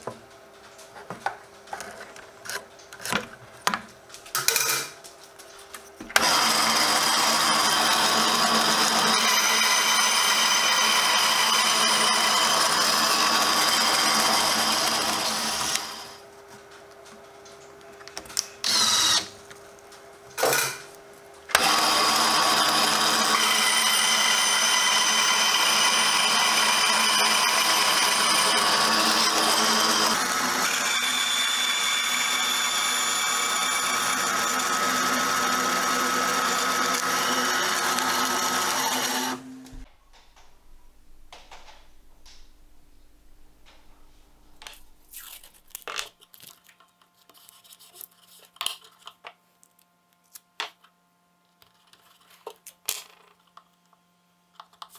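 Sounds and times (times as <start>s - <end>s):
scroll saw whining: 6.2s - 16.2s, 18.6s - 19.3s, 21.5s - 39.9s.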